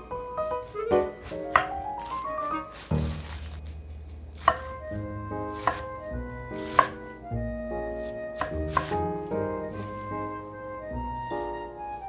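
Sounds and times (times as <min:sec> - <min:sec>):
background music: 0:00.0 - 0:12.0
knife cutting mushrooms: 0:04.4 - 0:07.2, 0:08.0 - 0:09.1.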